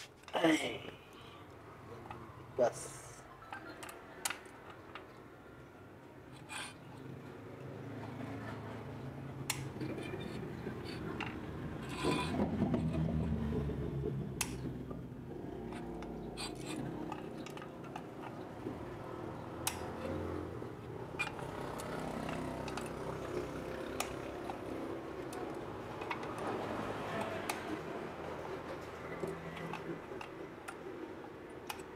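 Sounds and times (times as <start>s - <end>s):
metal tools clicking and scraping: 6.3s - 6.9s, 9.5s - 12.7s, 15.6s - 18.7s, 21.1s - 31.9s.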